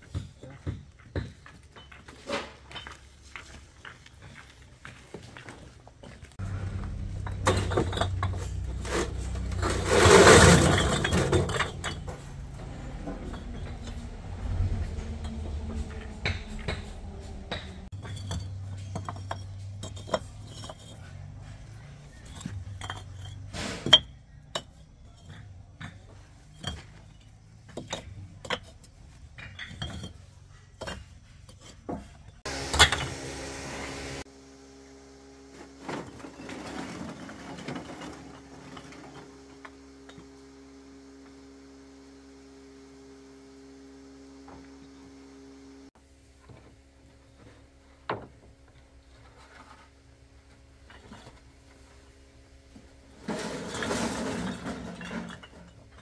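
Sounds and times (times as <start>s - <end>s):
hard objects knocking and clinking: 6.6s - 33.1s.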